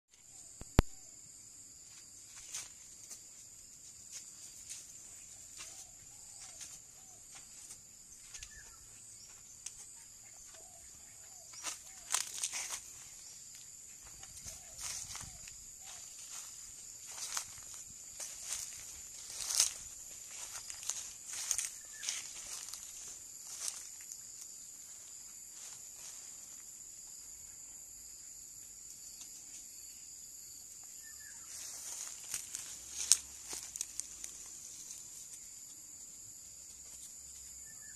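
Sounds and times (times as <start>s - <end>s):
high-pitched insect drone: 4.8s - 29.2s
faint bird calls: 5.2s - 13.4s.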